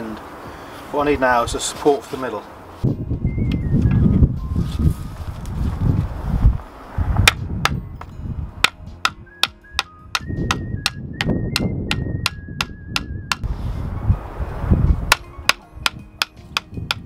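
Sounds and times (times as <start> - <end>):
axe knocking on wooden post: 8.6 - 13.4.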